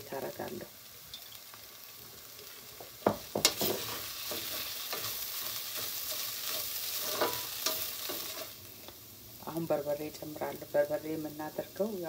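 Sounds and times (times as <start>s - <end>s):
onions sizzling in a pan: 0.0s - 12.0s
wooden spoon knocking on a pan: 3.0s - 3.9s
spoon scraping a pan: 3.4s - 8.6s.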